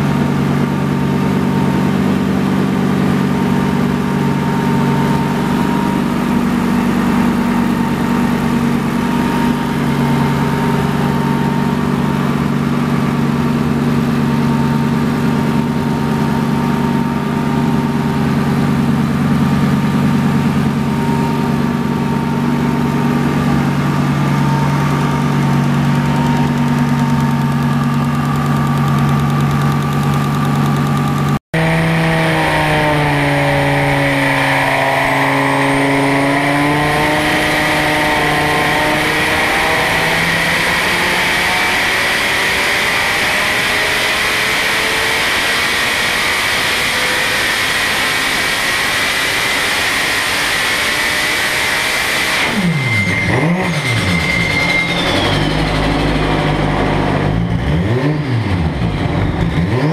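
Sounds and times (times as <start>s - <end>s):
car engine revving on dyno: 0.0s - 59.9s.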